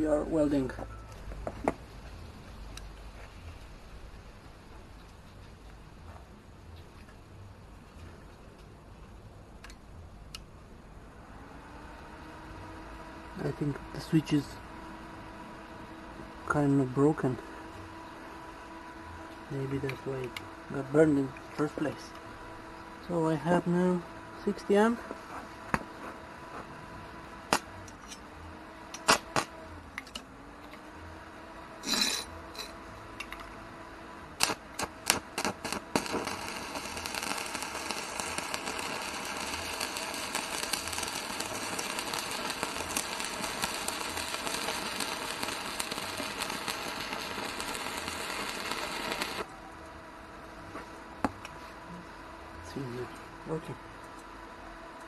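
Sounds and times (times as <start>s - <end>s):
welding arc crackling and hissing: 12.5s - 28.2s, 28.8s - 29.8s, 31.7s - 32.7s, 34.3s - 49.5s.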